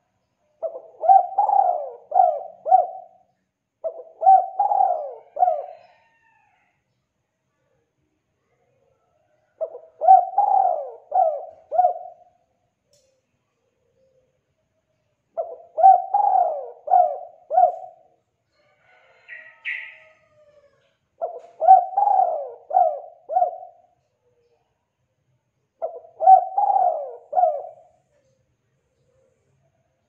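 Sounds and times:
dove cooing: 0.6 - 3.2, 3.8 - 6.3, 9.5 - 12.3, 15.4 - 18.1, 18.9 - 24.0, 25.8 - 28.0
high bird chirp: 19.2 - 20.2.

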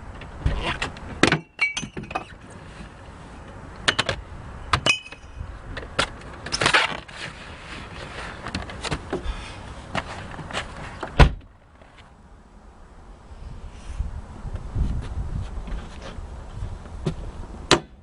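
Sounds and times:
glass bottles clinking: 1.4 - 2.3, 4.8 - 5.3
person scuffing and shuffling: 7.0 - 11.0, 14.5 - 16.3.

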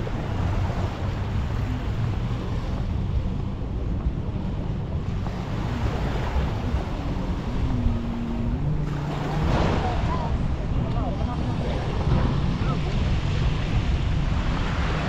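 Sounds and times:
wind buffeting microphone: 0.0 - 15.0
surf washing onto beach: 5.1 - 15.0.

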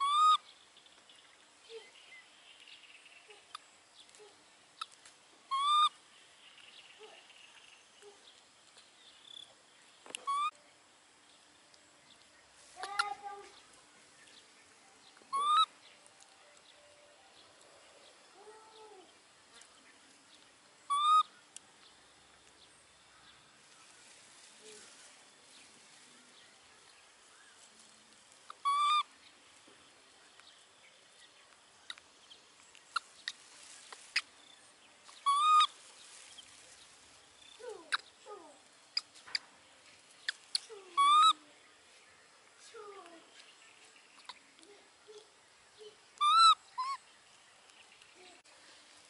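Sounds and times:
animal high call: 0.0 - 0.4, 5.5 - 6.0, 28.6 - 29.1, 40.9 - 41.4, 46.2 - 47.0
faint rustling: 23.2 - 28.6, 29.2 - 40.9, 47.3 - 49.0.

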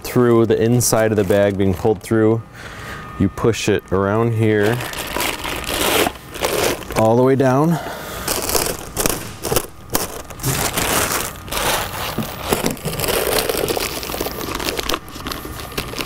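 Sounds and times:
plastic bag crinkling: 4.4 - 7.5, 8.2 - 16.0.

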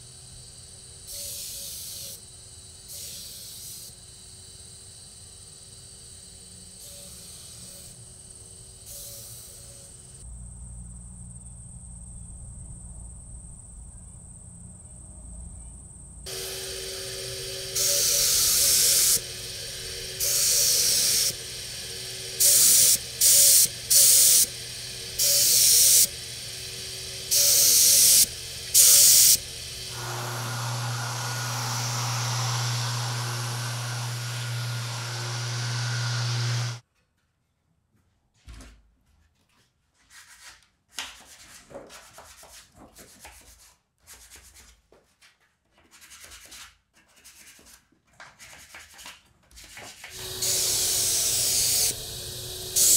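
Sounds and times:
turbine humming: 16.2 - 36.8, 50.2 - 52.9
orbit sander running: 16.3 - 36.8, 50.1 - 52.9
spray gun hissing: 16.3 - 36.8, 50.2 - 52.9.

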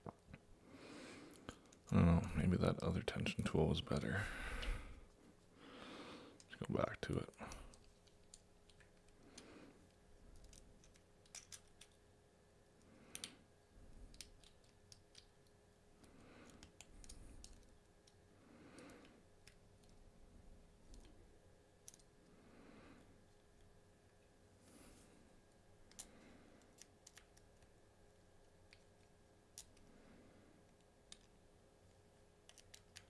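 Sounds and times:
soft breathing: 0.6 - 2.5, 4.0 - 6.6, 7.3 - 8.1, 9.1 - 10.6, 16.0 - 17.7, 18.3 - 21.3, 22.2 - 23.5, 24.5 - 26.8, 29.7 - 30.8.

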